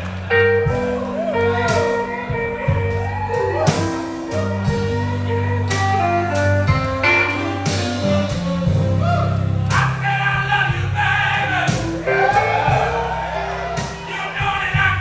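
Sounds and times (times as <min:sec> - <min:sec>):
sharp drum beat: 0:00.0 - 0:07.1, 0:07.7 - 0:15.0
bass line: 0:00.0 - 0:15.0
electric guitar lead: 0:00.3 - 0:09.6, 0:11.7 - 0:14.1.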